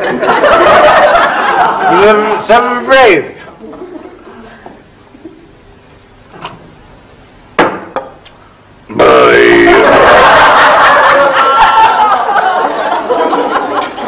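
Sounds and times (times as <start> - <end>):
audience laughing: 0.0 - 2.5, 9.1 - 14.0.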